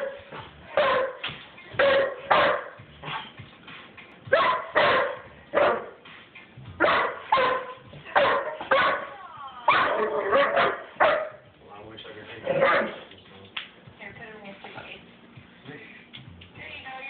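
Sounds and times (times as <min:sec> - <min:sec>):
dog barking: 0:00.0 - 0:01.2, 0:01.8 - 0:03.3, 0:04.3 - 0:06.0, 0:06.8 - 0:09.1, 0:09.7 - 0:11.4, 0:12.5 - 0:13.1.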